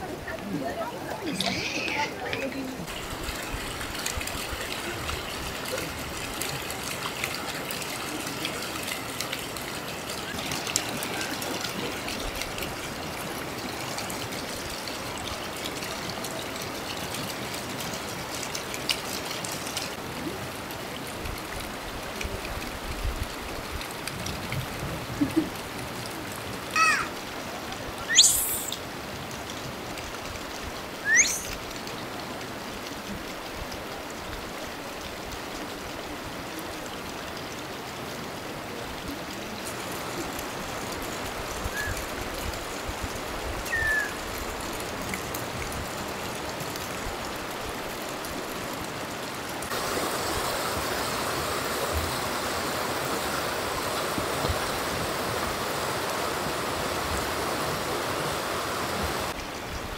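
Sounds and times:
mountain stream rushing: 0.0 - 59.9
bird chirps: 28.0 - 28.8, 31.1 - 31.6, 43.7 - 44.1.

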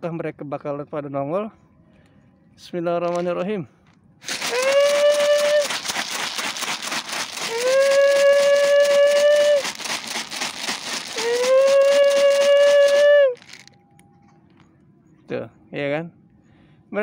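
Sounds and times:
dry cat food rattling in container: 3.1 - 3.4, 4.2 - 13.8
high-pitched calls: 6.8 - 13.7.

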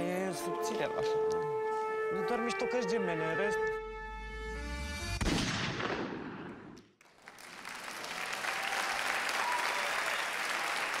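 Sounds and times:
studio audience applauding: 7.0 - 11.0.

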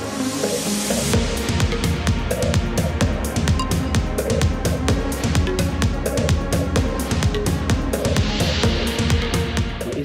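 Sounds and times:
electronic music with fast beat: 0.0 - 10.0.

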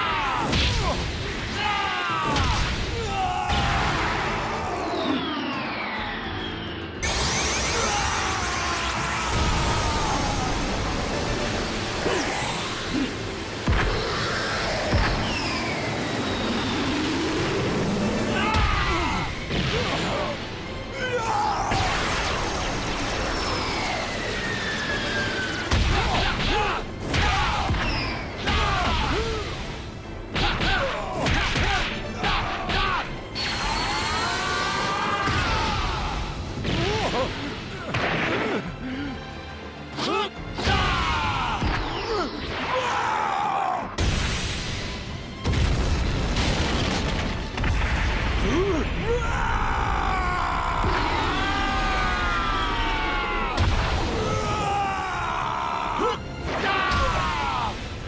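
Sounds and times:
battle music: 0.0 - 58.0
sustained effect rising and falling: 4.2 - 12.9.

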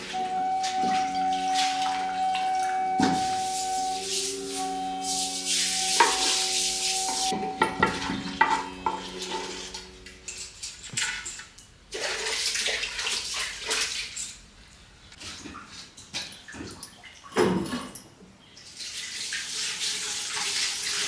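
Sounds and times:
spoon scraping a pan: 7.3 - 10.0.

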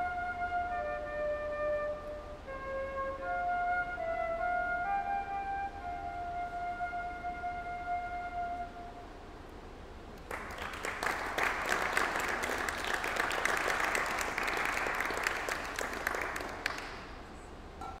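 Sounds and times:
audience applauding: 10.2 - 17.3.

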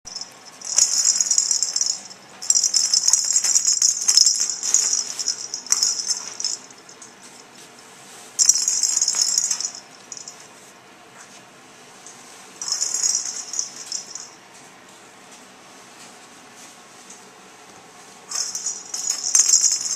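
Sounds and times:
toy rattle jingling: 0.1 - 7.1, 8.4 - 10.4, 12.6 - 14.4, 18.3 - 19.9.

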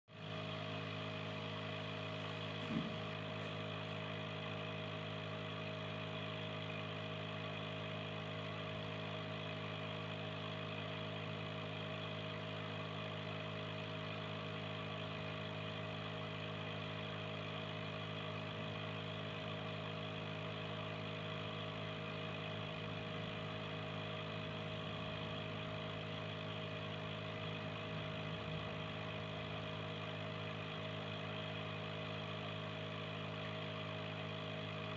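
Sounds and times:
aquarium air pump humming: 0.1 - 34.9
brief knock: 2.6 - 3.0.

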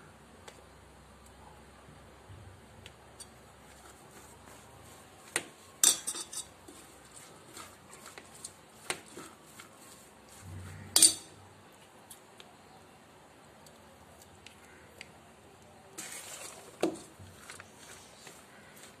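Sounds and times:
spoon scraping steel bowl: 5.8 - 11.4, 16.0 - 19.0
sharp metal clanks: 11.0 - 11.4.

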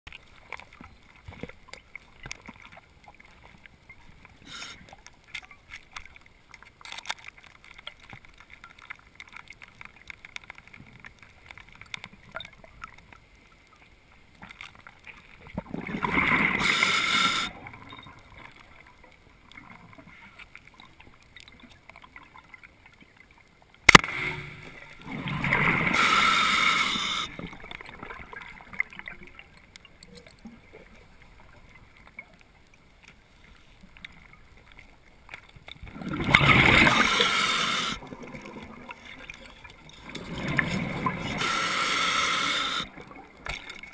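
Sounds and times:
faint underwater crackle: 0.1 - 43.9
exhaled bubbles bursting: 35.9 - 38.8.

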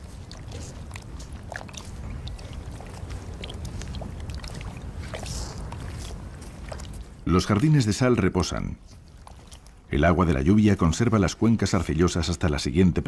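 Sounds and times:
light ticks and rustles: 0.0 - 7.8, 8.4 - 9.9
wind rumbling on microphone: 0.0 - 11.6.

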